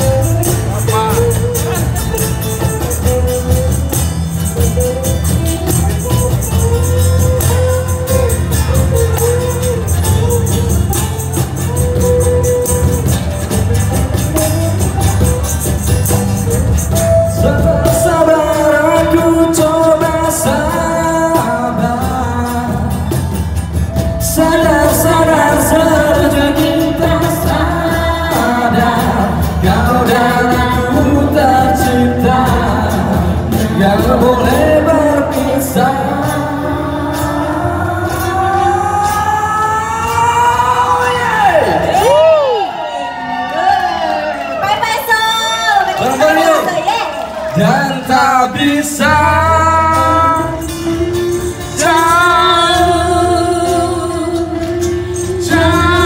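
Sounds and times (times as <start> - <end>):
jingling tambourine: 0.0 - 38.3
acoustic rock band playing: 0.0 - 56.0
man and woman singing: 17.1 - 42.3, 47.4 - 56.0.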